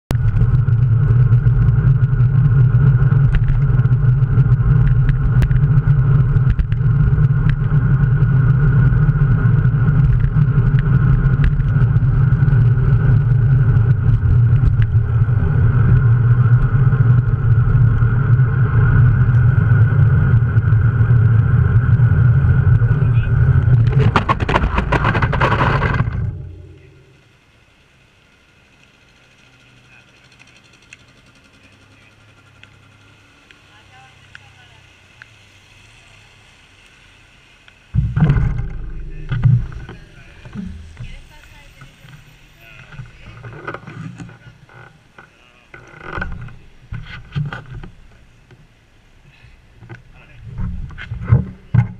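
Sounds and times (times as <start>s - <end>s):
bicycle clattering on road: 0.1s - 27.4s, 38.0s - 48.6s
faint street background: 0.1s - 51.9s
low hum: 0.1s - 51.9s
tyre hiss on wet asphalt: 27.1s - 38.0s
sharp knocks: 38.0s - 41.2s.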